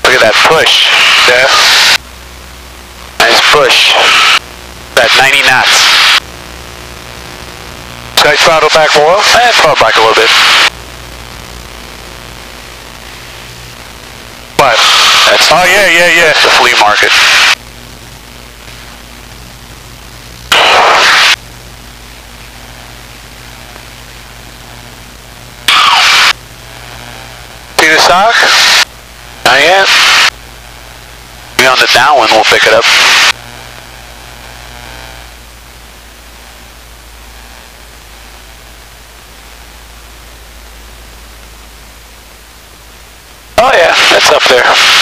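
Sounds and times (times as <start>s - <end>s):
burst of static hiss: 0.0s - 45.0s
steady low hum: 0.0s - 45.0s.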